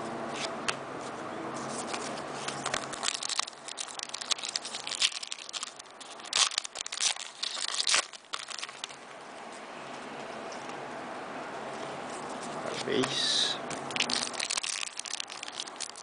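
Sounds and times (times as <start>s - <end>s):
foil pack crinkling and tearing: 1.8s - 9.0s, 13.7s - 16.0s.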